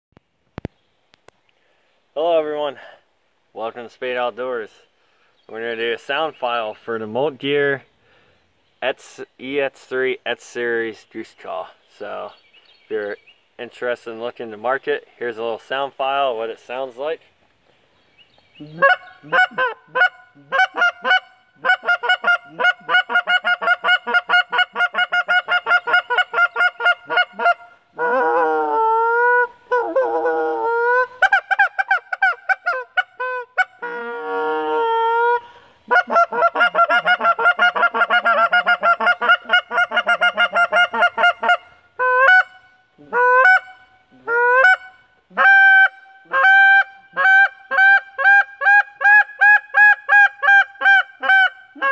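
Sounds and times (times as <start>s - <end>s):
goose call clucks: 18.6s - 51.9s
goose call moaning notes: 18.6s - 51.9s.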